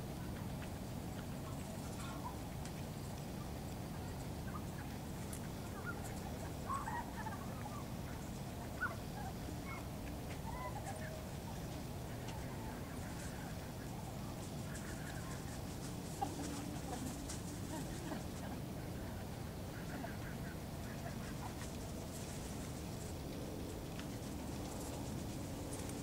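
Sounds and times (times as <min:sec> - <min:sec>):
bird calls: 0:01.4 - 0:03.1, 0:03.9 - 0:18.3.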